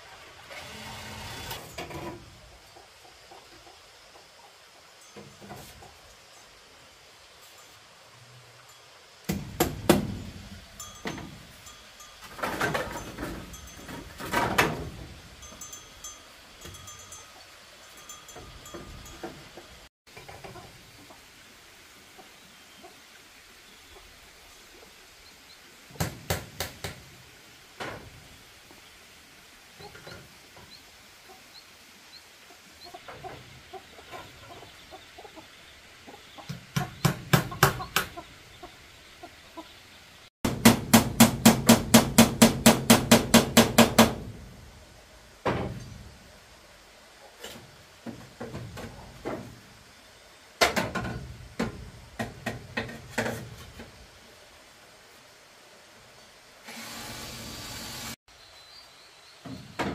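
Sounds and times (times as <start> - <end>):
hammer striking bamboo: 9.3 - 10.4, 40.5 - 44.3.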